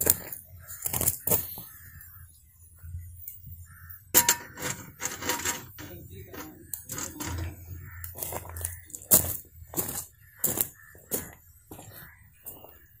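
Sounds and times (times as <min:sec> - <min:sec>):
skillet knocking and scraping on metal: 0:04.2 - 0:07.9.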